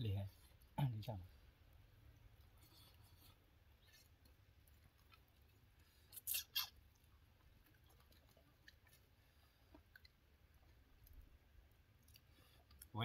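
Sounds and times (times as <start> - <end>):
people eating by hand: 2.0 - 12.9
scratchy rasps: 6.0 - 6.8.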